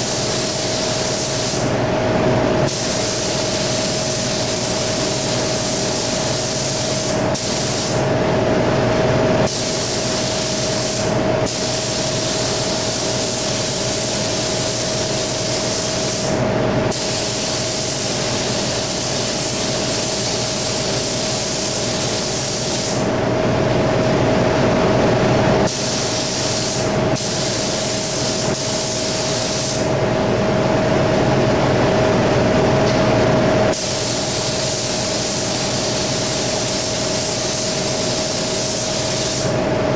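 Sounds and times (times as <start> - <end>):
spray gun hissing: 0.0 - 1.7, 2.7 - 8.0, 9.5 - 23.1, 25.7 - 29.9, 33.7 - 39.6
steady hum: 0.0 - 39.9.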